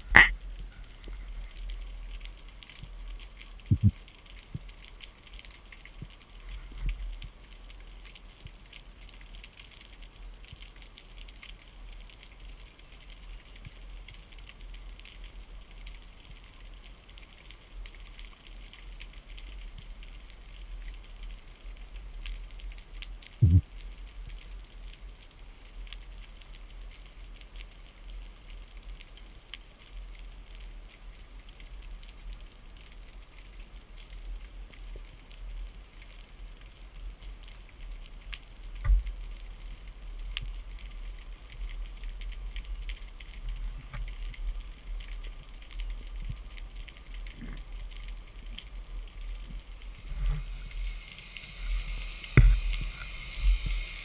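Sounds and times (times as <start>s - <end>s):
low underwater rumble: 0.0s - 2.3s, 3.6s - 4.7s, 23.4s - 24.0s, 38.7s - 54.0s
underwater fine crackling: 0.0s - 54.0s.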